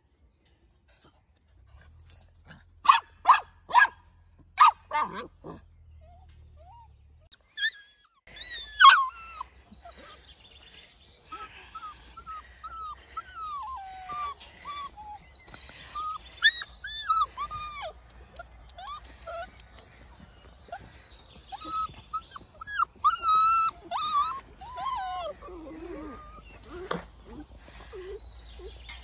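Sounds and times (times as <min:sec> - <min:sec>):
puppies whining and yipping: 0:04.6 - 0:29.0
puppy yelping: 0:16.0 - 0:20.9, 0:21.5 - 0:28.7.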